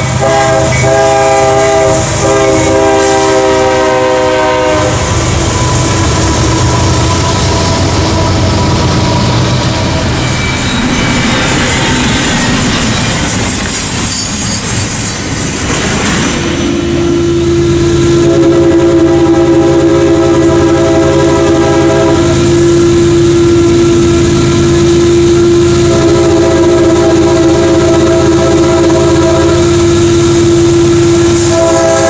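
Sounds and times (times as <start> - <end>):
locomotive air horn chord: 0.0 - 5.2, 16.9 - 32.0
freight cars rumbling and clattering: 5.0 - 17.1.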